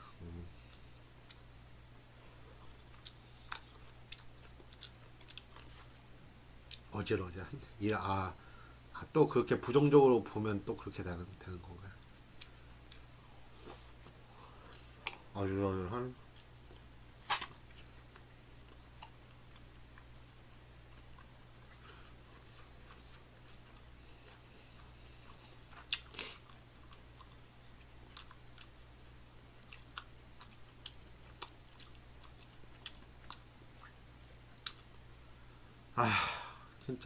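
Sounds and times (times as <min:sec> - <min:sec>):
steady low hum: 0:00.0 - 0:37.0
quiet chewing: 0:02.3 - 0:06.0, 0:16.2 - 0:35.5
mouth clicks and smacks: 0:34.6 - 0:35.0.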